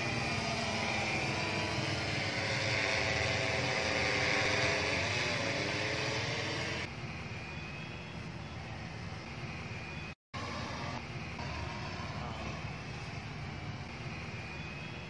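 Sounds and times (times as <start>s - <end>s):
drone motors whining: 0.0s - 7.9s, 9.4s - 15.0s.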